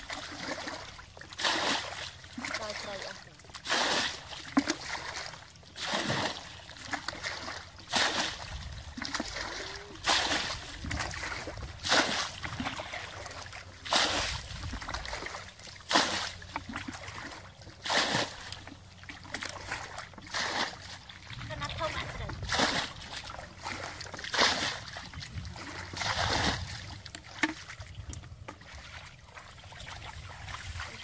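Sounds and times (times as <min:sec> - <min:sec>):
water sloshing: 0:00.0 - 0:31.0
water splashing: 0:00.0 - 0:31.0.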